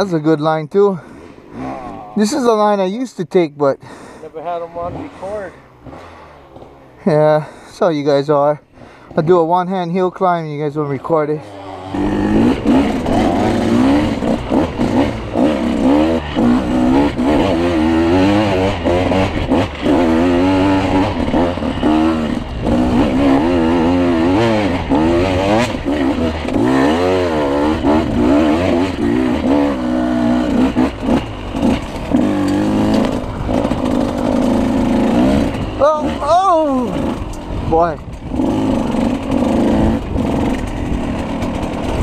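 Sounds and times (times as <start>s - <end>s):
dirt bike engine revving: 1.0s - 3.0s, 3.9s - 7.7s, 10.7s - 42.0s
bike clattering over bumps: 12.0s - 29.8s, 30.4s - 36.2s, 37.0s - 42.0s.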